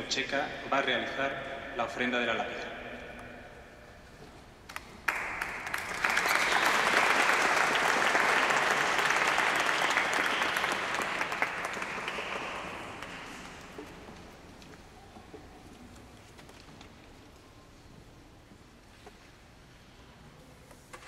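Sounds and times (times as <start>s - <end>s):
audience applauding: 4.8s - 14.2s.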